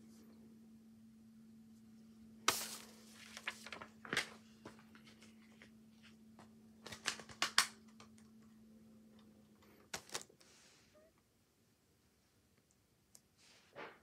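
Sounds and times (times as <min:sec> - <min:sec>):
faint steady hum: 0:00.0 - 0:14.0
paper rustling and crackling: 0:02.5 - 0:08.2, 0:09.7 - 0:10.6.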